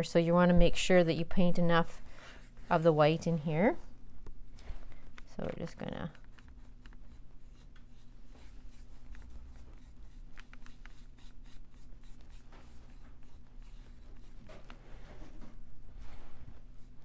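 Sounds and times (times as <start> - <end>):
steady low hum: 0.0 - 17.0
paintbrush scratchy strokes: 6.3 - 15.2.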